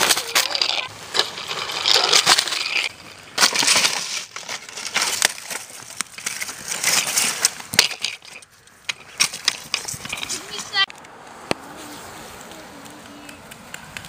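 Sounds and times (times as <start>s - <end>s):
foam and plastic crunching: 0.0s - 8.4s.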